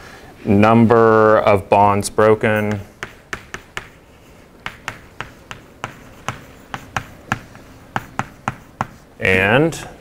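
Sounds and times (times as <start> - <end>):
chalk tapping on blackboard: 2.6 - 9.1.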